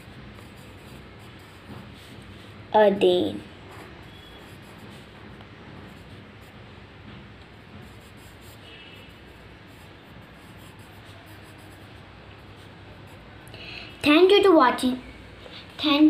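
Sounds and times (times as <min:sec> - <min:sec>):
pen scratching on paper: 0:00.0 - 0:02.6, 0:03.6 - 0:06.7, 0:07.8 - 0:13.4.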